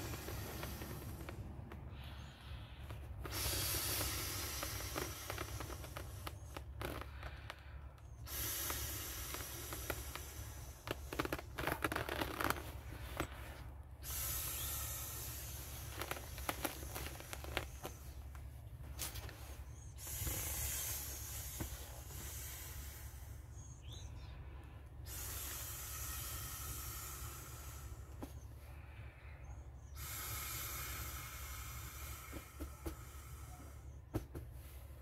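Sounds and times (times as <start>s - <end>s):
air hissing into valve: 0.0s - 2.0s, 3.2s - 6.8s, 8.2s - 18.1s, 19.3s - 24.0s, 25.0s - 28.3s, 29.9s - 33.9s.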